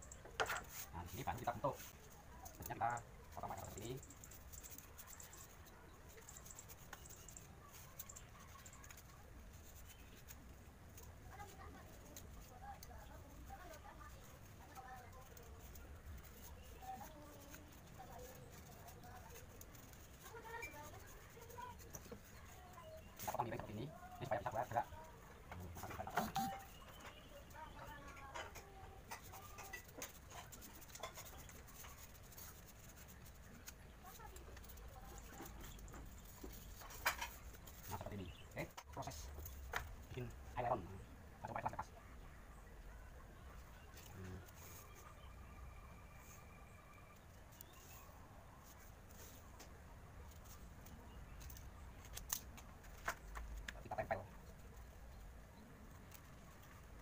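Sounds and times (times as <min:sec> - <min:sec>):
hand tool scratching styrofoam: 0:00.4 - 0:25.0, 0:25.6 - 0:38.6.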